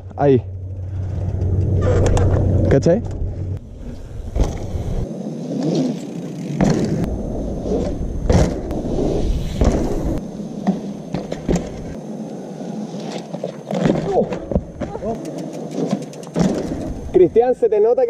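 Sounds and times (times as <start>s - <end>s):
bike tyres crunching over dirt: 0.0s - 17.3s
bike clacking and rattling: 10.6s - 12.0s, 13.1s - 17.1s.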